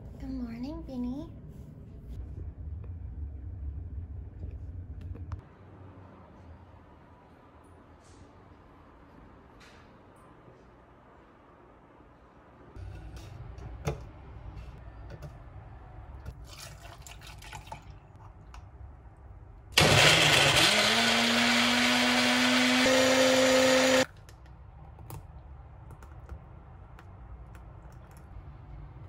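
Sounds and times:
blender motor whirring: 19.8s - 24.1s.

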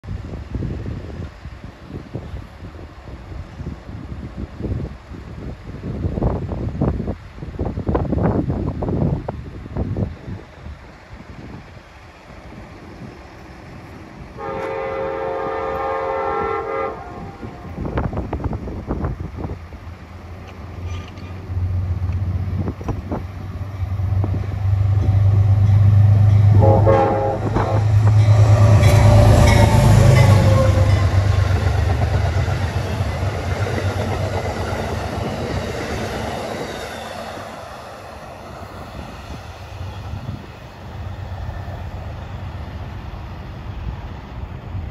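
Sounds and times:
diesel locomotive engine rumbling: 0.0s - 44.9s
train horn: 14.3s - 18.0s, 25.1s - 31.6s
train cars clattering on rails: 20.4s - 21.5s.

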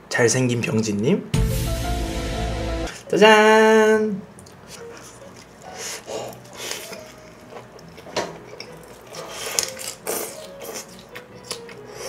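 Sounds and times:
lettuce crunching while chewing: 4.4s - 12.0s.

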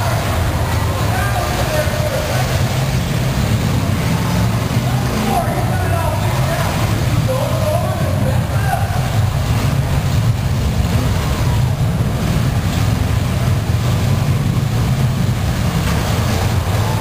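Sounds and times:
car engines rumbling: 0.0s - 17.0s.

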